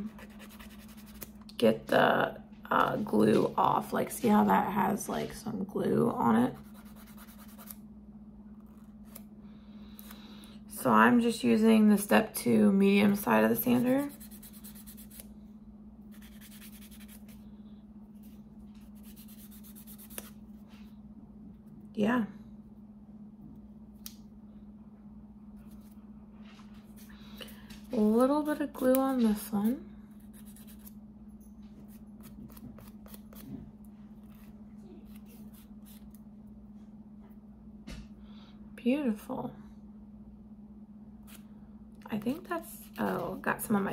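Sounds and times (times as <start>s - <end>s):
steady low hum: 0.0s - 43.9s.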